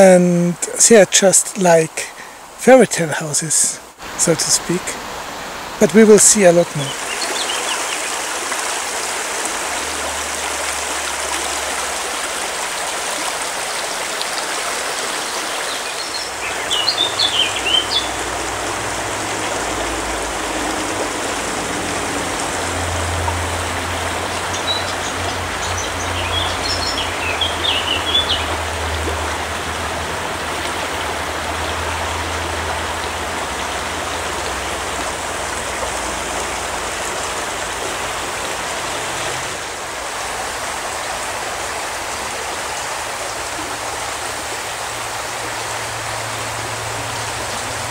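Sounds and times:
creek rushing over stones: 0:00.0 - 0:47.9
bird chirping: 0:06.2 - 0:08.1, 0:15.6 - 0:18.3, 0:24.3 - 0:28.7.

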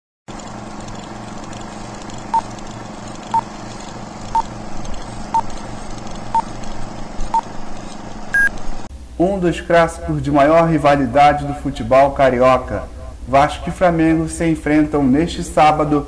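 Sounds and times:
steady hum and hiss: 0:00.3 - 0:16.0
short electronic beeps: 0:08.3 - 0:08.5.

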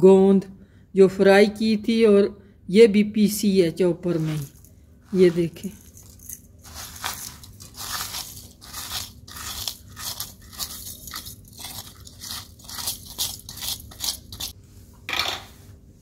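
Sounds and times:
metal spoon scraping steel bowl: 0:04.2 - 0:14.6.

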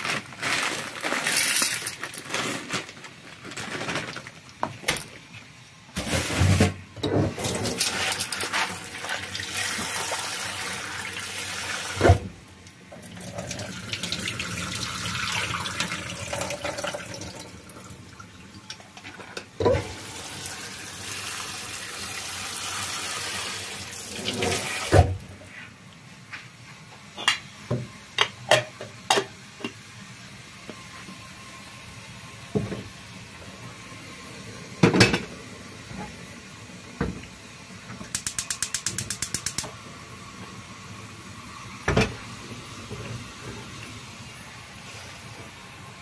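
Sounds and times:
tap water running into metal bowl: 0:13.0 - 0:18.0.

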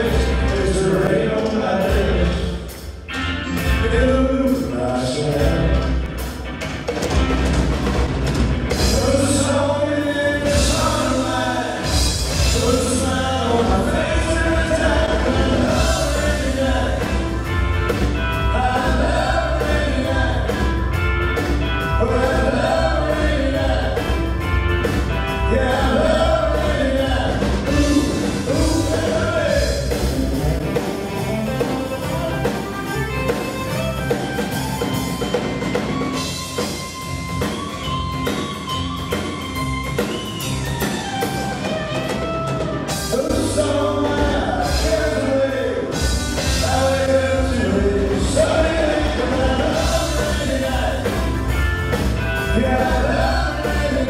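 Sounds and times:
man singing lead: 0:00.0 - 0:02.8, 0:03.5 - 0:06.0, 0:08.7 - 0:34.1, 0:42.9 - 0:54.0
live country-pop band: 0:00.0 - 0:54.0.

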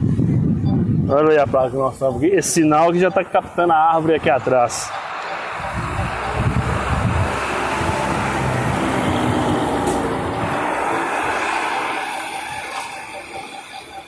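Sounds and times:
truck driving past: 0:03.9 - 0:14.0.

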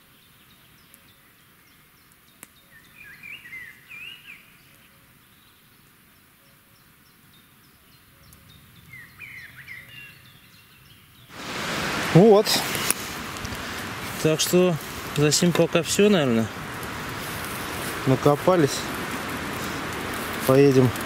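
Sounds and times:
faint high bird calls: 0:00.0 - 0:11.2
songbird chirping: 0:00.0 - 0:13.2
low outdoor hiss: 0:00.0 - 0:21.0.

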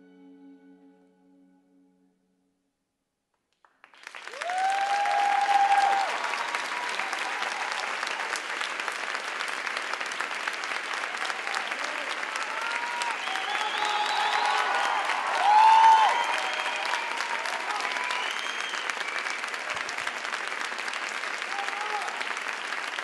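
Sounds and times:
sustained music tones: 0:00.0 - 0:02.4
audience applause: 0:03.7 - 0:23.0
crowd cheering: 0:03.9 - 0:23.0.

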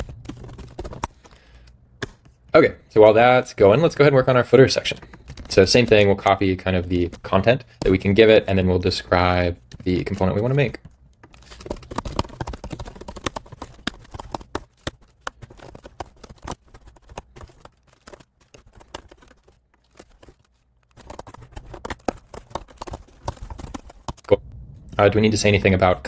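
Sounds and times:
typing on computer keyboard: 0:04.8 - 0:06.1, 0:09.7 - 0:24.3.

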